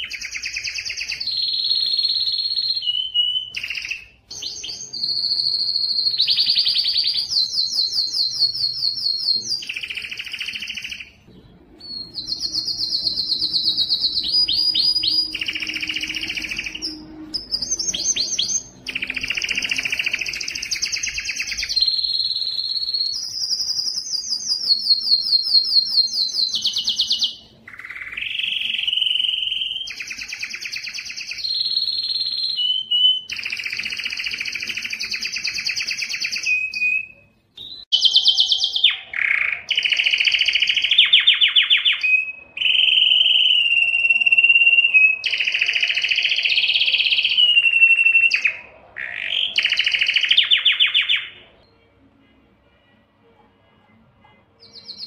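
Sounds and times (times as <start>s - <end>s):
canary singing trills: 0.0s - 52.0s, 54.2s - 55.0s.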